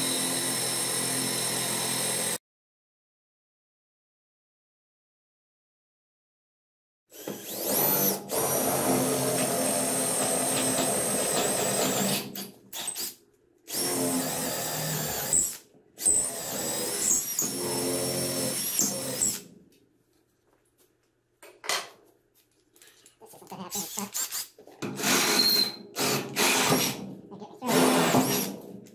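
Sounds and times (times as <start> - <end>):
cordless drill boring wood: 0.0 - 2.4, 7.1 - 13.1, 13.7 - 19.5, 23.7 - 27.0, 27.7 - 28.6.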